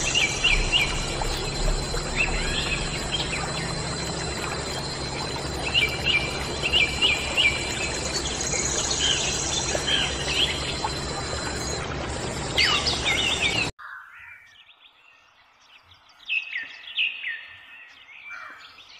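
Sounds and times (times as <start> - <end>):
birds chirping: 0.0 - 13.7
water pump humming: 0.0 - 13.7.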